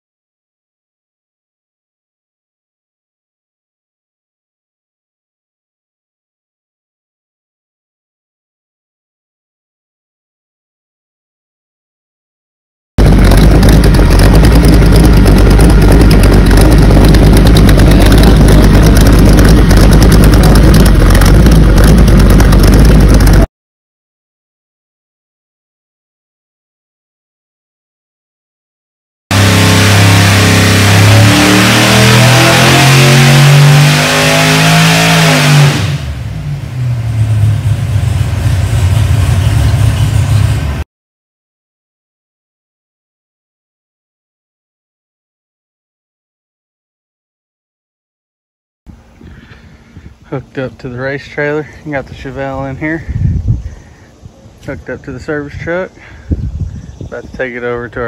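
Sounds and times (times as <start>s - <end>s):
loud v eight engine running: 13.0s - 23.5s, 29.3s - 40.8s.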